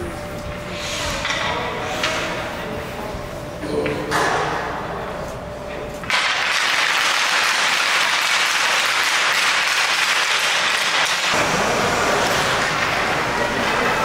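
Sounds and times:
audience applause: 6.2 - 14.0.

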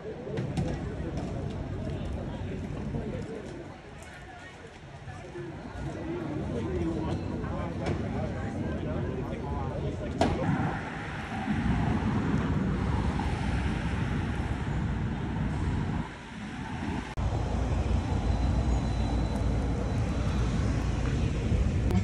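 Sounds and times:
cars driving past: 10.3 - 21.9.

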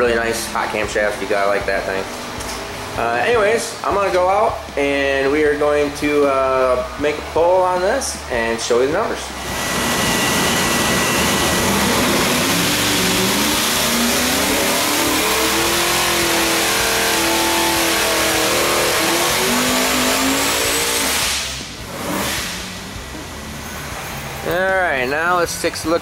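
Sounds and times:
supercharged engine revving: 0.0 - 26.0
engine idling: 9.1 - 26.0.

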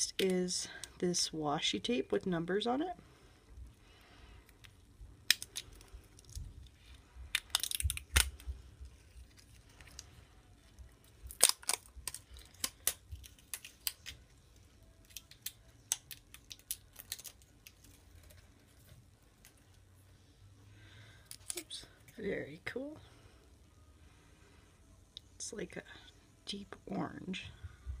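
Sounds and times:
hands handling small supplies: 4.4 - 19.8
tape roll handling: 15.0 - 19.8.

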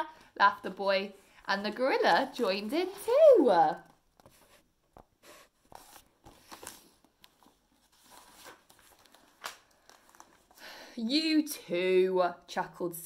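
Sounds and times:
book pages rustling and turning: 1.6 - 10.6.

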